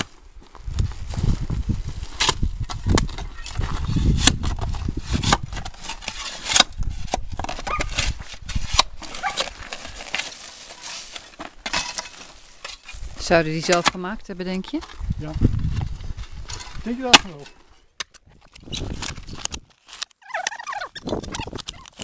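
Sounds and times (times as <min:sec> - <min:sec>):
spade digging into gravel: 0:05.1 - 0:06.8, 0:07.4 - 0:13.1.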